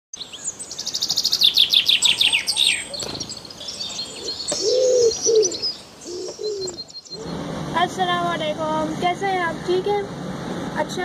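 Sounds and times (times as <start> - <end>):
songbird trill: 0.1 - 7.5
high bird chattering: 0.2 - 7.4
low cooing: 4.0 - 6.9.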